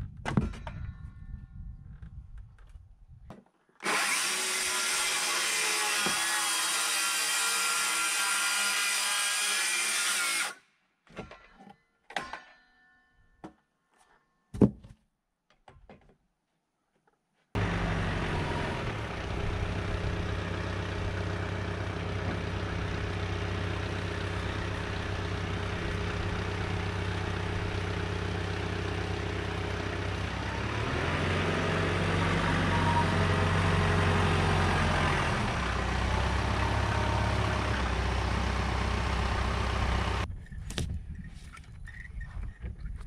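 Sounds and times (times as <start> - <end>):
tractor diesel engine running: 17.6 - 40.3.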